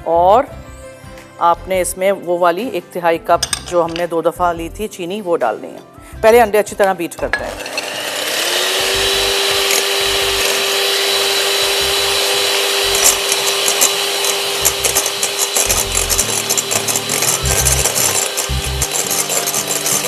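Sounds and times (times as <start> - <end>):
electric hand mixer motor humming: 7.5 - 20.0.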